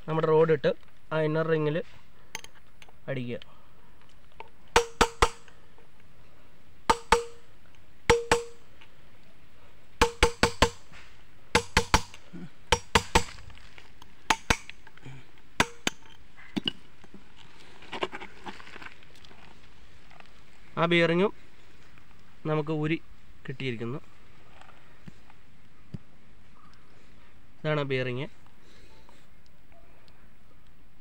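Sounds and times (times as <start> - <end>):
hammer striking steel rod: 4.8 - 5.5, 6.9 - 7.4, 8.1 - 8.6, 10.0 - 10.8, 11.6 - 13.4, 14.3 - 14.8, 15.6 - 16.0.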